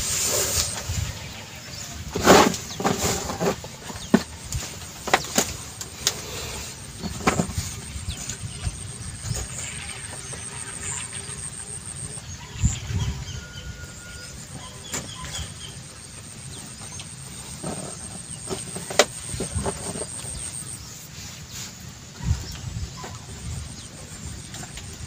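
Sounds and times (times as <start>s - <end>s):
wind buffeting microphone: 12.4s - 14.0s, 22.2s - 25.0s.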